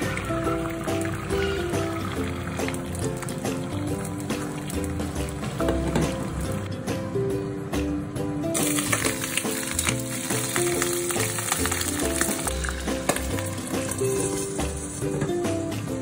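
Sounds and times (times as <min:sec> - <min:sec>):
eggs sizzling in a frying pan: 0:00.0 - 0:05.6, 0:08.6 - 0:15.5
background music: 0:00.0 - 0:16.0.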